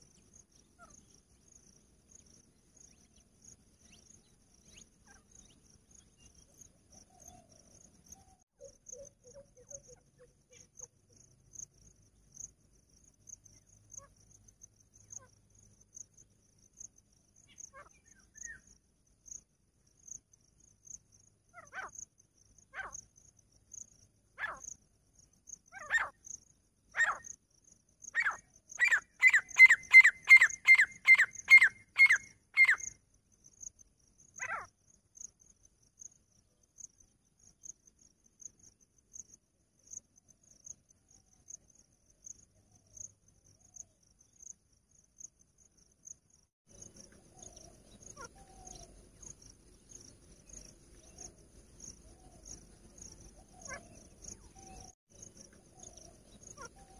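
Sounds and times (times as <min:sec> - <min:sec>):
crickets chirping: 0:00.0 - 0:56.9
francolin calling: 0:25.7 - 0:26.3, 0:27.0 - 0:27.4, 0:28.0 - 0:33.0, 0:46.8 - 0:56.9.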